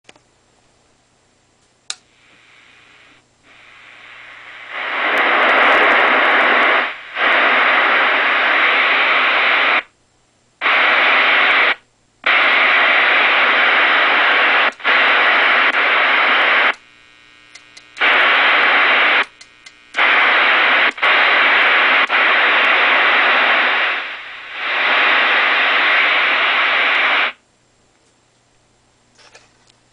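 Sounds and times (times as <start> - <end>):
click: 0.0 - 0.3, 1.9 - 2.1, 17.5 - 18.1, 19.2 - 19.8
low steady hum: 0.1 - 29.9
radio static hiss: 1.9 - 10.0, 10.6 - 27.4.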